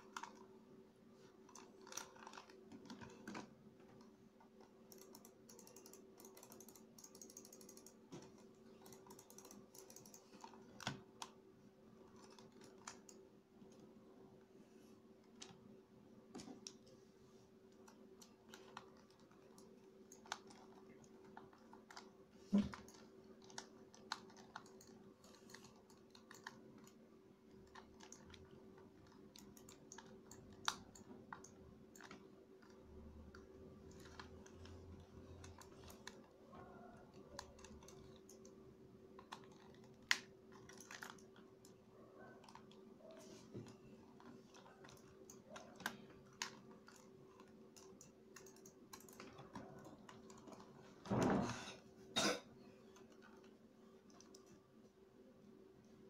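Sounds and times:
faint steady hum: 0.0s - 56.0s.

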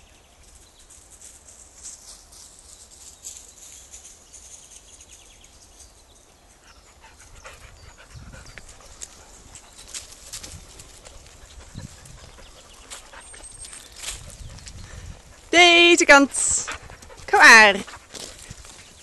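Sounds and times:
dog panting: 6.6s - 15.5s, 16.3s - 19.0s
footsteps crunching dry leaves: 8.7s - 15.5s, 17.8s - 19.0s.

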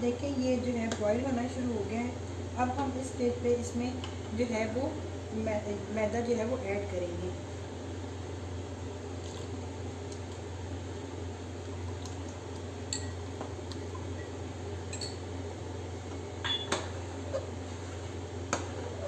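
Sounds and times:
low steady hum: 0.0s - 19.0s
spoon clinking against pot: 12.9s - 13.2s, 14.9s - 15.2s.

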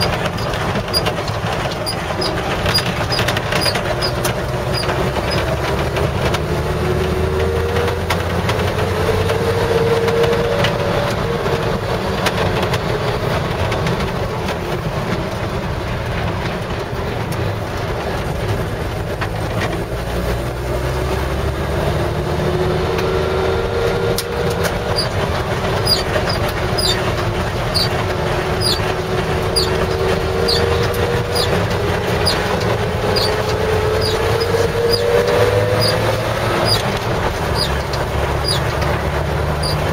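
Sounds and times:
light regular ticking: 0.0s - 5.5s, 24.5s - 39.9s
truck engine and road noise: 0.0s - 39.9s
whine rising in pitch: 22.1s - 39.9s.

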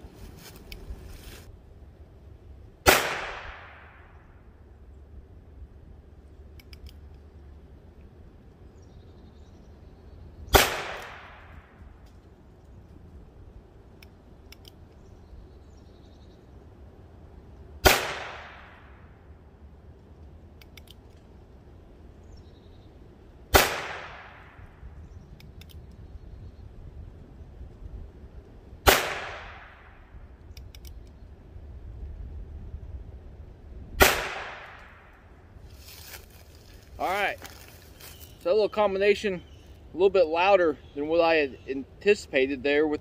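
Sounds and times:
suppressed gunshots: 2.8s - 4.2s, 10.5s - 11.8s, 17.8s - 19.0s, 23.5s - 24.7s, 28.8s - 30.0s, 34.0s - 35.2s
faint clicks: 6.5s - 7.3s, 14.0s - 15.1s, 20.2s - 21.3s, 25.4s - 26.1s, 30.4s - 31.2s.

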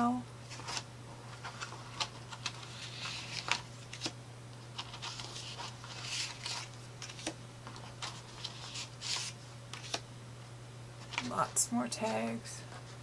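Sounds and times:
paper and cardstock rustling: 0.5s - 4.1s, 4.7s - 10.0s.

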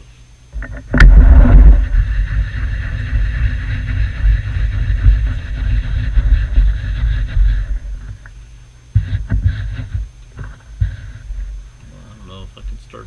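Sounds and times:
lathe motor rumbling: 0.9s - 8.3s.

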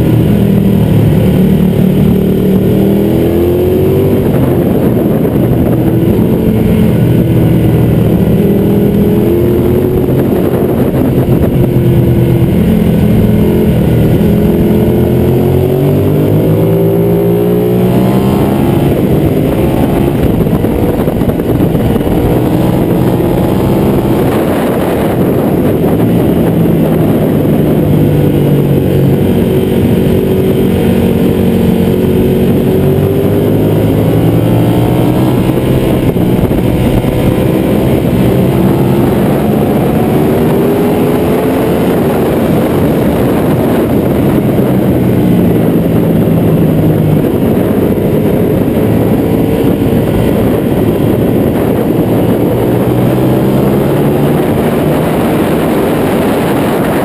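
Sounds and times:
motorcycle engine revving: 0.0s - 57.0s
rushing wind noise: 0.0s - 57.0s.

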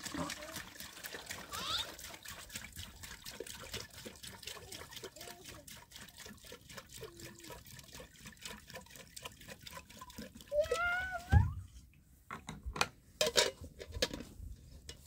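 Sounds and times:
small splashes and drips: 0.0s - 12.0s
faint trickling water: 0.0s - 12.2s.

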